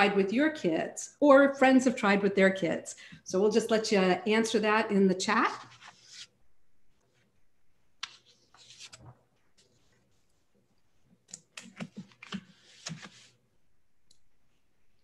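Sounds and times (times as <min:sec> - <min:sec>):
keyboard and mouse clicks: 0:11.2 - 0:13.2.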